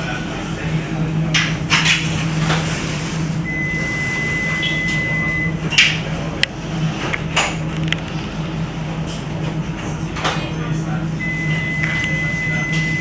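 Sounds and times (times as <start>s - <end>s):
tram electrical hum: 0.0s - 13.0s
electronic beep: 3.5s - 5.6s.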